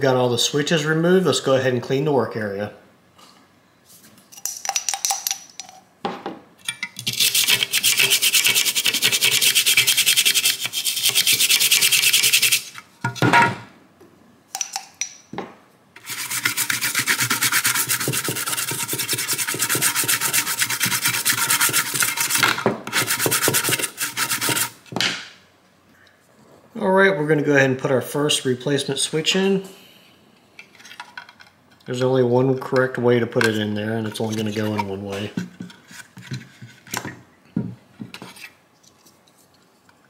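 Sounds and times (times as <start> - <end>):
toothbrush scrubbing circuit board: 7.1 - 12.8, 16.0 - 22.4, 23.0 - 24.8.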